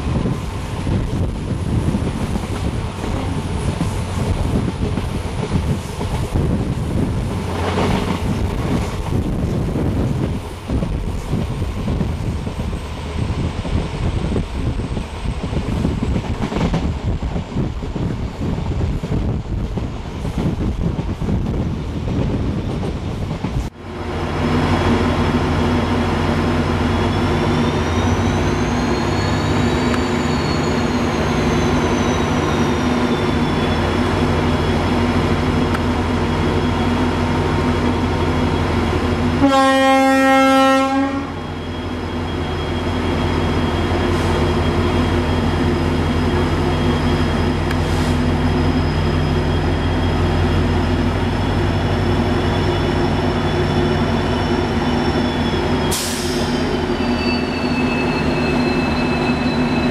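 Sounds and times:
locomotive engine drone: 0.0 - 59.9
train horn: 39.4 - 41.4.

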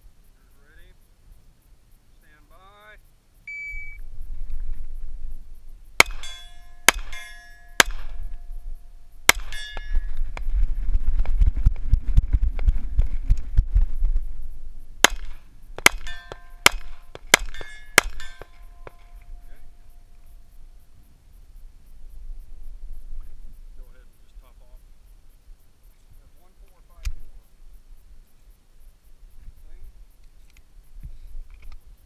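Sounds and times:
shot timer beep: 3.5 - 4.0
low rumbling movement noise: 3.9 - 6.0, 9.9 - 15.8
pistol shots: 6.0 - 8.3, 9.3 - 10.0, 15.0 - 19.1
steel targets ringing: 6.0 - 8.5, 9.3 - 10.1, 15.8 - 19.9.

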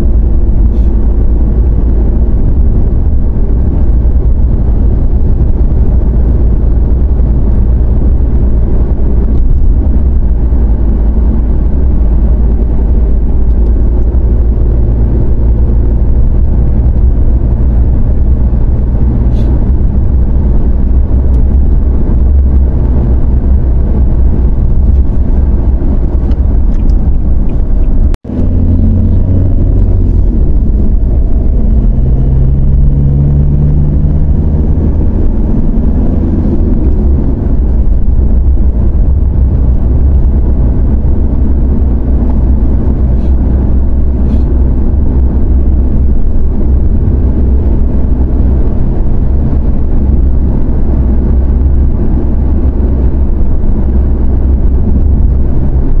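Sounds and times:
pickup engine: 0.0 - 56.0.

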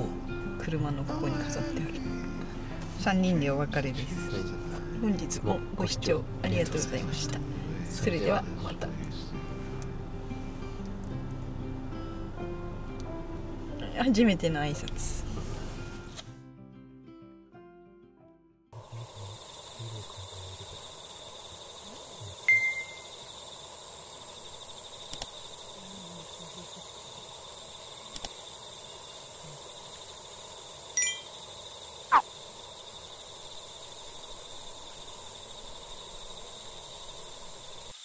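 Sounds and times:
insect trilling: 18.8 - 38.0
chime-like tones and clicks: 31.0 - 31.3.

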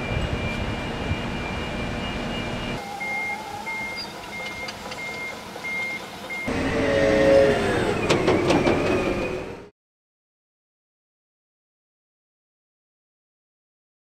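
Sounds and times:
diesel engine running with whine: 0.0 - 9.7
reversing alarm beeping: 0.0 - 9.7.

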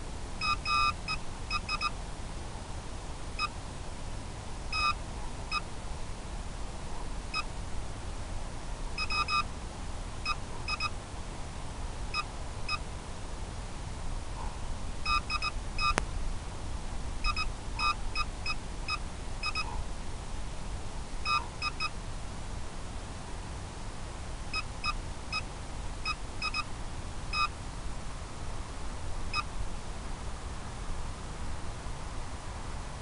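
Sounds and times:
short electronic beeps: 0.4 - 1.9, 4.7 - 5.6, 9.0 - 9.5, 10.3 - 10.9, 15.1 - 16.0, 17.2 - 18.3, 18.9 - 19.7, 21.3 - 22.0, 26.1 - 26.7.

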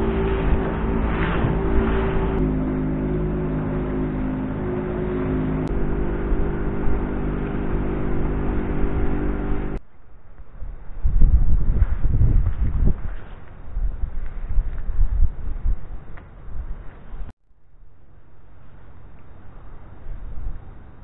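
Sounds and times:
outboard motor running: 0.0 - 9.8
water and hull noise: 0.0 - 9.8
wind buffeting microphone: 0.0 - 9.8, 10.5 - 17.3.

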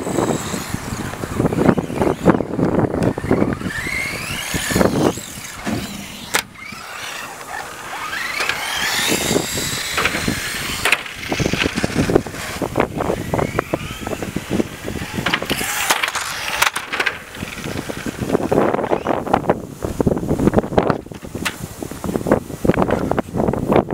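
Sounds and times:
toy car motor whining: 0.0 - 19.6
sharp knocks and clatter: 10.0 - 12.1, 15.2 - 17.8.

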